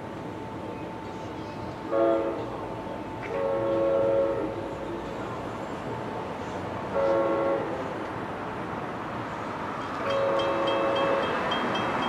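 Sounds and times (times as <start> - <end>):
locomotive air horn chord: 1.9 - 2.5, 3.3 - 4.6, 6.9 - 7.8, 10.0 - 11.5.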